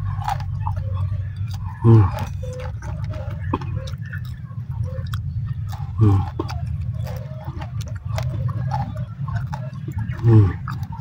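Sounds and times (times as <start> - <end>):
chewing chilies with wet crunches: 0.0 - 11.0
person groaning: 1.8 - 2.2.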